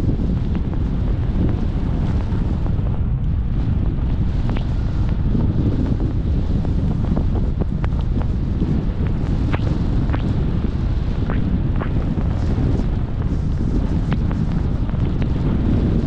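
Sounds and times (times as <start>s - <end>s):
wind rushing across microphone: 0.0s - 16.0s.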